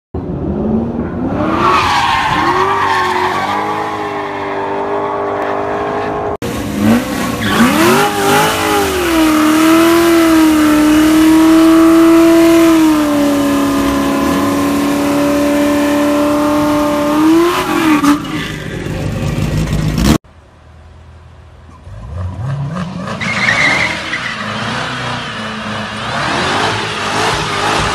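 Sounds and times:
tires squealing: 0:01.1 - 0:06.3, 0:07.2 - 0:18.9, 0:21.7 - 0:27.9
car engine revving hard: 0:04.8 - 0:18.2, 0:24.4 - 0:27.9.

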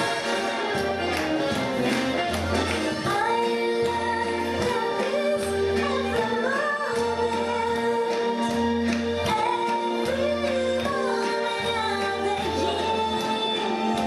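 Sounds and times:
singer with band: 0:09.1 - 0:14.0.

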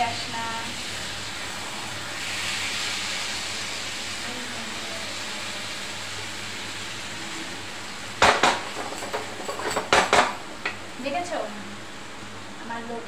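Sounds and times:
curry sizzling in frying pan: 0:00.0 - 0:09.4.

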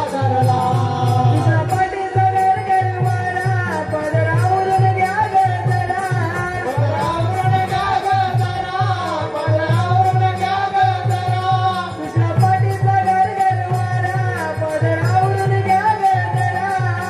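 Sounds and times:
hand drum beat: 0:00.0 - 0:17.0
person singing folk melody: 0:00.0 - 0:17.0.

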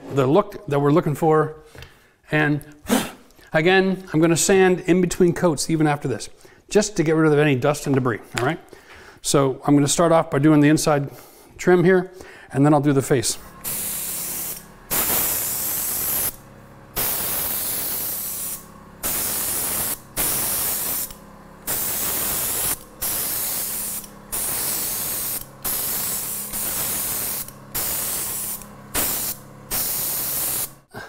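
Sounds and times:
paint spray gun hissing: 0:13.4 - 0:30.9.

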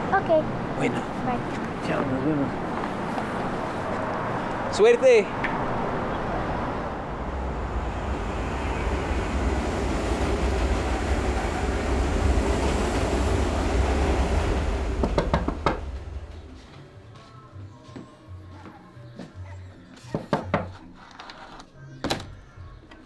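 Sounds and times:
subway train rumbling: 0:05.3 - 0:17.8.

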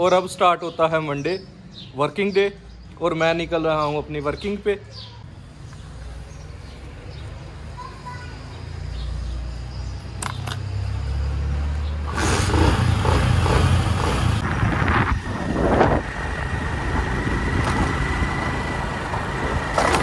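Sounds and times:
motorcycle engine: 0:10.2 - 0:20.0.

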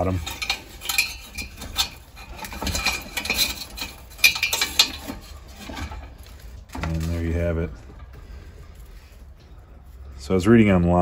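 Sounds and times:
metal tube clicking and scraping: 0:00.0 - 0:07.2.

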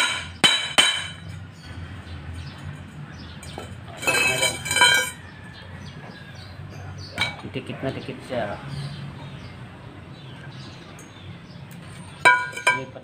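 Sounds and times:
hammer clanking on steel pipe: 0:00.0 - 0:01.3, 0:12.2 - 0:13.0.

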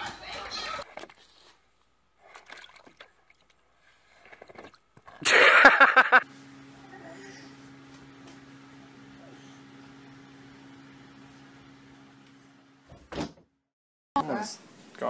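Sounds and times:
water sloshing in plastic pool: 0:00.6 - 0:05.2
steady low hum: 0:05.2 - 0:12.9.

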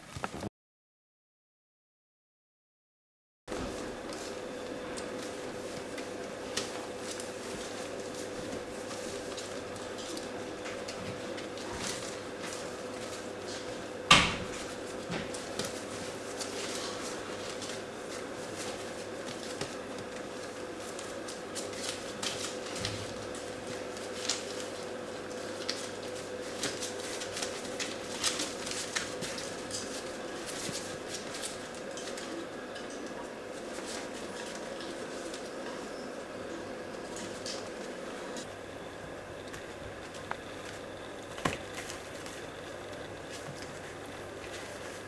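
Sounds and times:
steady hum: 0:03.5 - 0:45.0
newspaper rustling: 0:05.1 - 0:13.6, 0:14.6 - 0:32.4, 0:38.4 - 0:45.0.

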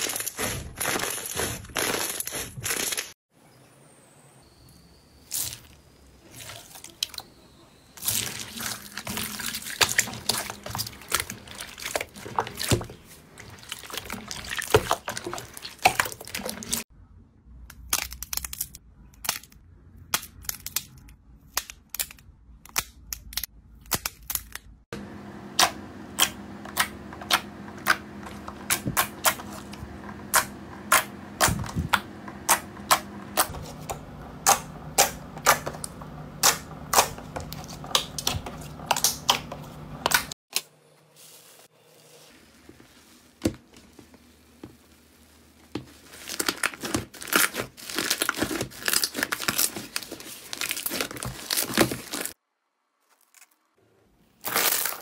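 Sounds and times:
slime squelching in water: 0:08.0 - 0:16.8.

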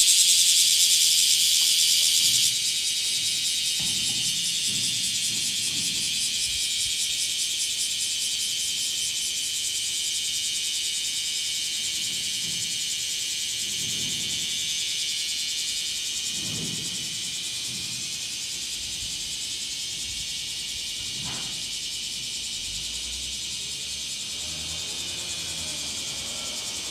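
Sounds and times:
cicadas buzzing: 0:00.0 - 0:26.9.

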